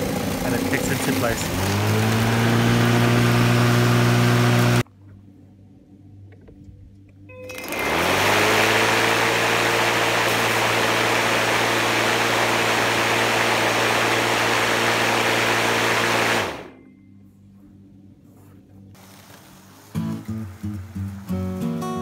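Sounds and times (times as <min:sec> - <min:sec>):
electric lawn mower motor humming: 0:00.0 - 0:04.8, 0:07.5 - 0:16.8.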